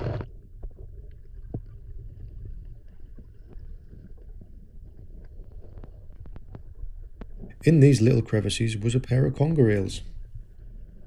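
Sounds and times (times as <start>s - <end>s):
faint clicks and crackles: 0.0s - 7.6s
muffled underwater rumble: 0.0s - 11.0s.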